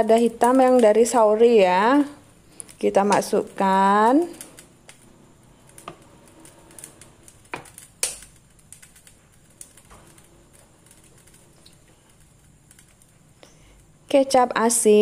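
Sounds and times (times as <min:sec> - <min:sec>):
faint steady background noise: 0:00.0 - 0:15.0.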